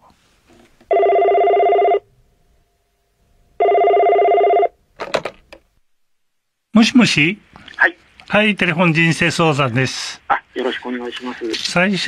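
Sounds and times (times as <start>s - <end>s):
telephone ringing: 0.9s - 2.0s, 3.6s - 4.8s.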